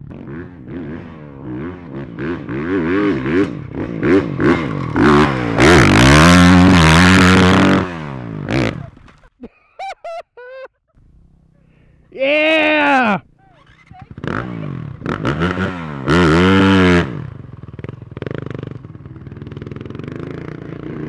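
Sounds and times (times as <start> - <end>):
motocross bike revving: 0.0 - 9.1, 13.5 - 21.0.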